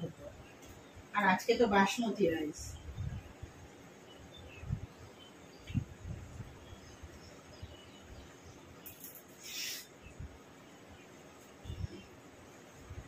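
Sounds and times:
faint bird chirps: 0:02.4 - 0:12.8
short hiss: 0:08.9 - 0:10.0.

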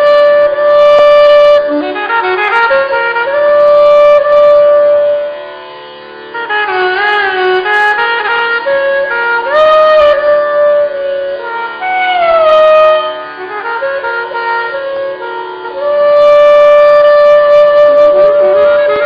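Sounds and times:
saxophones playing melody: 0:15.8 - 0:19.0.

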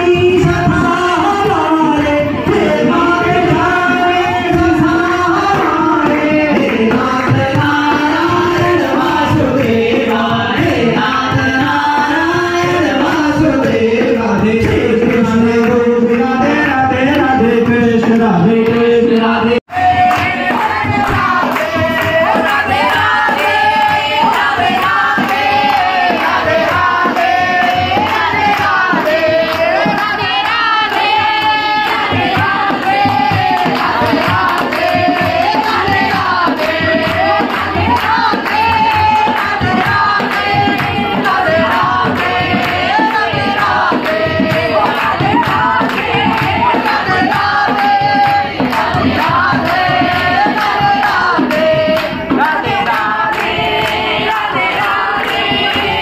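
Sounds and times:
group singing devotional song: 0:00.0 - 0:56.0
people clapping: 0:00.0 - 0:56.0
hand drum: 0:19.8 - 0:56.0.

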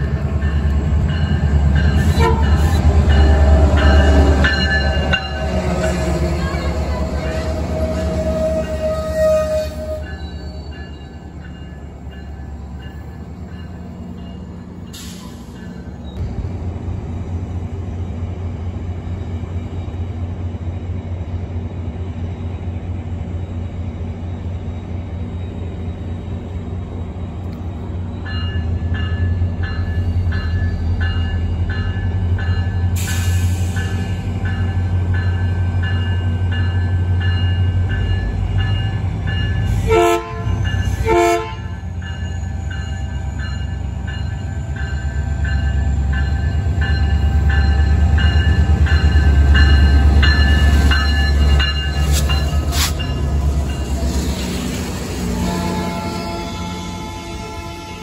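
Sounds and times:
locomotive bell ringing: 0:00.0 - 0:16.2, 0:28.1 - 0:39.8, 0:41.6 - 0:54.6
locomotive engine droning: 0:00.0 - 0:58.0
train horn blasts: 0:02.0 - 0:03.6, 0:05.3 - 0:10.6, 0:39.7 - 0:41.9, 0:55.2 - 0:58.0.

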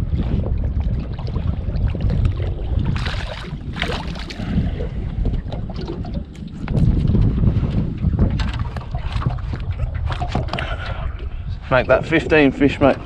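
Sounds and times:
wind buffeting microphone: 0:00.0 - 0:13.0
water splashing: 0:00.7 - 0:06.9.

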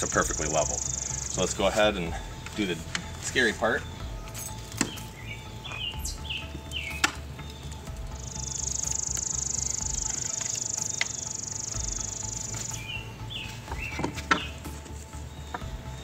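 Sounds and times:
insect buzzing: 0:00.0 - 0:01.5, 0:07.8 - 0:15.8
bird chirps: 0:00.0 - 0:16.0.

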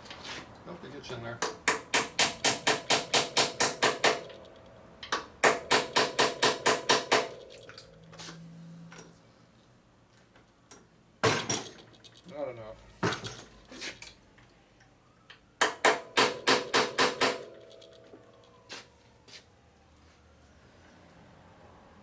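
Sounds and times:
hammer tapping on metal punch: 0:01.4 - 0:04.4, 0:05.1 - 0:07.4, 0:15.6 - 0:17.5.

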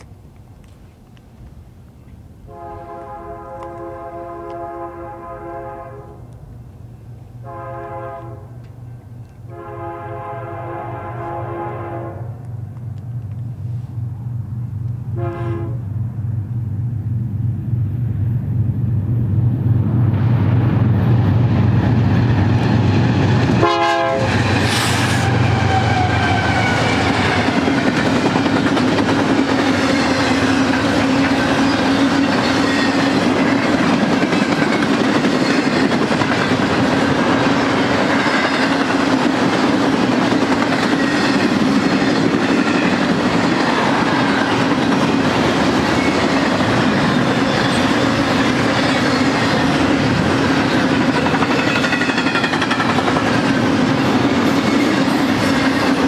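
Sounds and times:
diesel locomotive engine drone: 0:00.0 - 0:56.0
train horn: 0:02.5 - 0:06.4, 0:07.4 - 0:08.7, 0:09.4 - 0:12.5, 0:15.1 - 0:15.9, 0:23.6 - 0:27.8
train wheels rumbling and clattering: 0:12.3 - 0:56.0.

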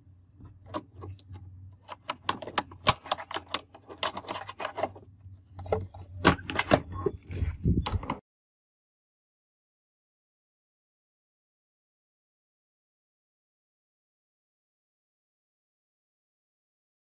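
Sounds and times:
padlock clicking and rattling: 0:00.4 - 0:07.2.

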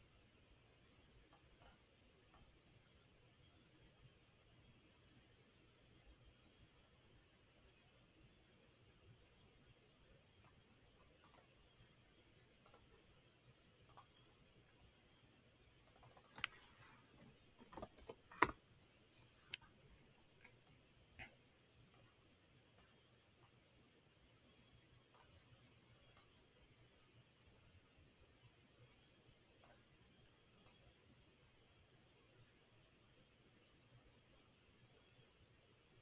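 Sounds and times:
computer mouse clicks: 0:01.3 - 0:02.5, 0:10.4 - 0:10.6, 0:11.2 - 0:11.5, 0:12.6 - 0:13.0, 0:13.9 - 0:14.2, 0:15.8 - 0:16.7, 0:25.1 - 0:25.4, 0:26.0 - 0:26.4, 0:29.6 - 0:29.9.

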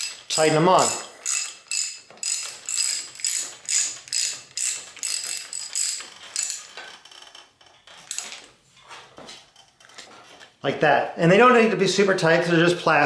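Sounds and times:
ratchet wrench clicking: 0:00.0 - 0:08.4.

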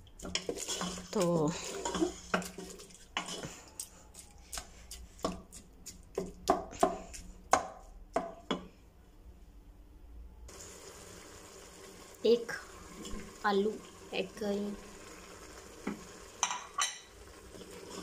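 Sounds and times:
wooden spoon knocking and scraping pot: 0:00.0 - 0:08.7.

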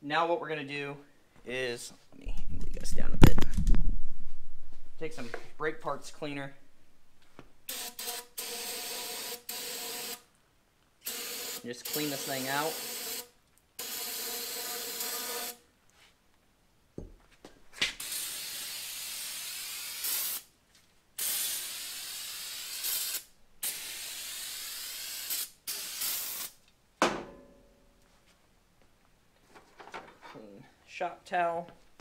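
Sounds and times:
aerosol can spraying: 0:07.7 - 0:10.2, 0:11.0 - 0:15.6, 0:18.0 - 0:20.5, 0:21.2 - 0:26.6.

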